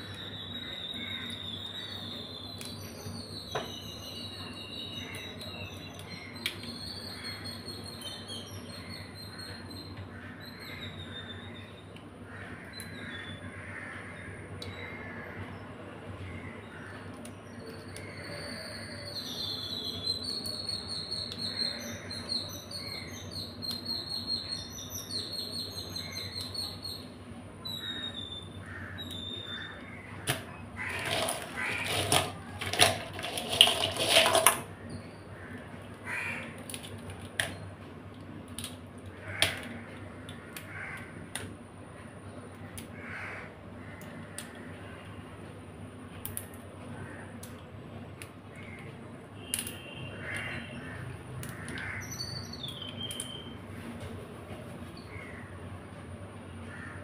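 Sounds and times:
bird chirping: 0:00.0 - 0:11.9, 0:52.0 - 0:53.6
rough scraping and rubbing: 0:30.8 - 0:34.7.

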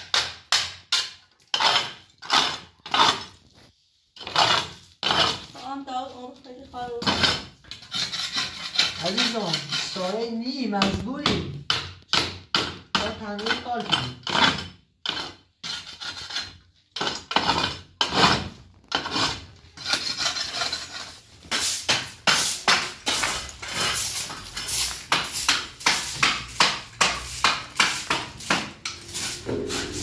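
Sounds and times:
plaster scraped off wall: 0:00.0 - 0:05.8, 0:06.9 - 0:11.0, 0:12.6 - 0:30.0
straw broom sweeping rubble: 0:19.0 - 0:30.0.

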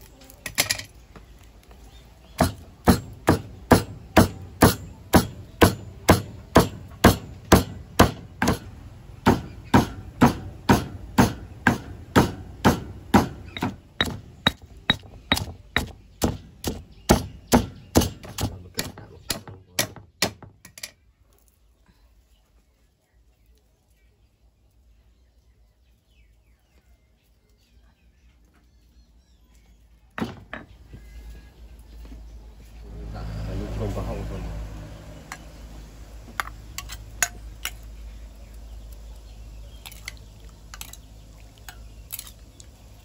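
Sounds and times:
pestle pounding in a mortar: 0:02.4 - 0:20.6.

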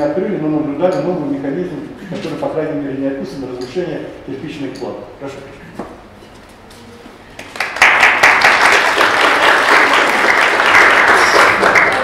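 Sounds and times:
audience applauding: 0:07.3 - 0:12.0.

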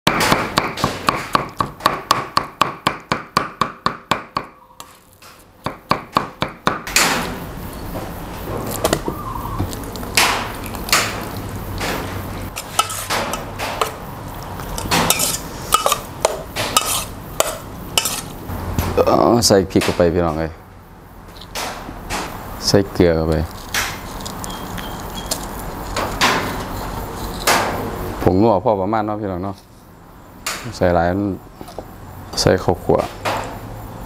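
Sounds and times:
cleaver chopping meat on wood: 0:00.1 - 0:04.6, 0:05.6 - 0:07.2, 0:08.8 - 0:12.0
metal spoon scraping steel pot: 0:12.5 - 0:14.0, 0:14.8 - 0:16.1, 0:16.8 - 0:18.4.

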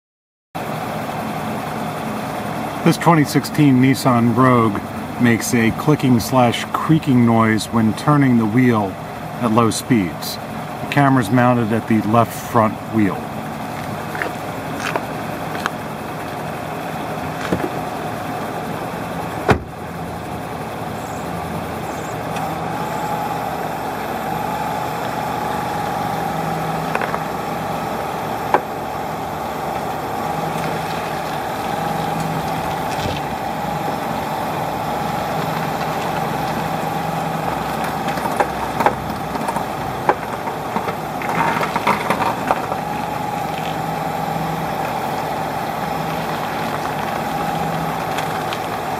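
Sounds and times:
car engine running: 0:00.6 - 0:48.9
clicks and creaks from wheel: 0:13.6 - 0:16.4, 0:35.0 - 0:43.8.

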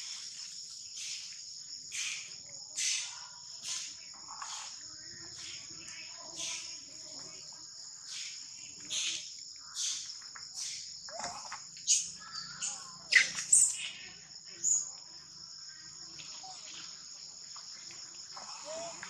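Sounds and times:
high-pitched insect drone: 0:07.9 - 0:19.0.

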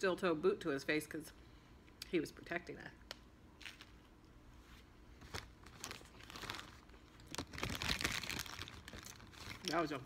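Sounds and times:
food packaging crinkling: 0:03.6 - 0:04.1, 0:05.2 - 0:10.0.

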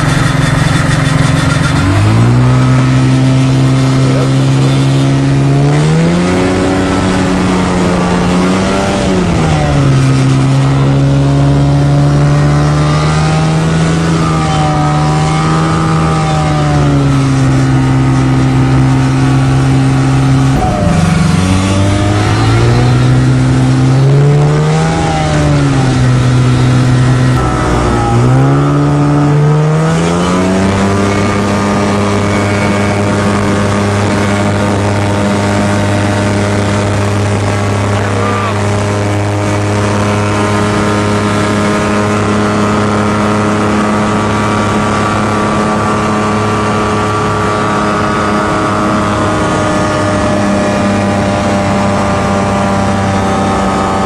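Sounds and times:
light aircraft engine revving: 0:00.0 - 0:54.0.

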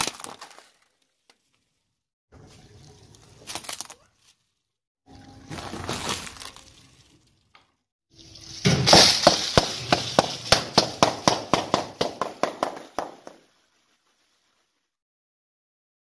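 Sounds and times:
chip packets popping under tyre: 0:00.0 - 0:01.0.

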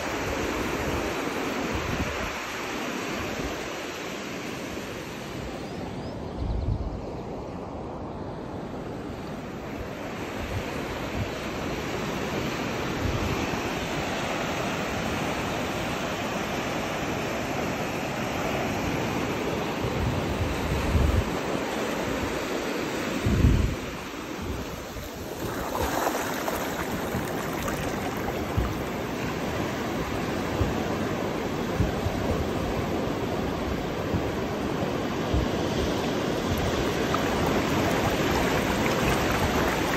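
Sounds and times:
surf washing over wet sand: 0:10.0 - 0:39.9
wind buffeting microphone: 0:23.2 - 0:39.9.

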